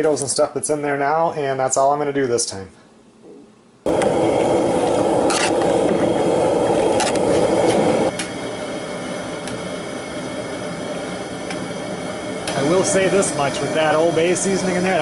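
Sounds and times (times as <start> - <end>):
gas burner rushing: 3.9 - 15.0.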